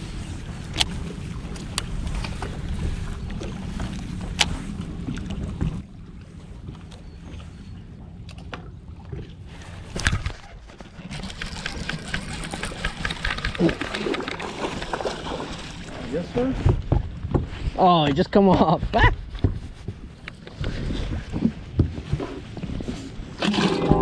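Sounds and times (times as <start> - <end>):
electric trolling motor humming: 10.7 - 14.4.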